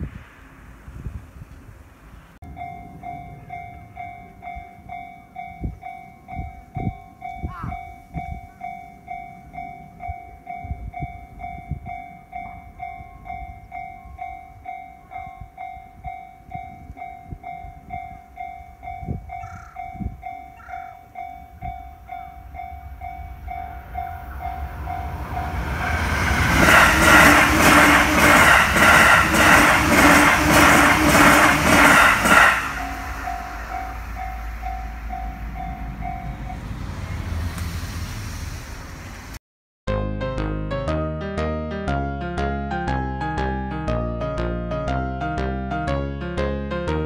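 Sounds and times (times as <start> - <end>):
electric train passing: 0.0 - 39.4
level-crossing bell dinging: 2.5 - 25.8, 32.6 - 36.8.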